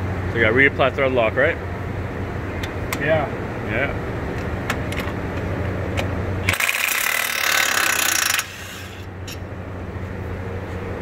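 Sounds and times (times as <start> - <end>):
steady low hum: 0.0 - 11.0
impact wrench hammering: 6.4 - 9.4.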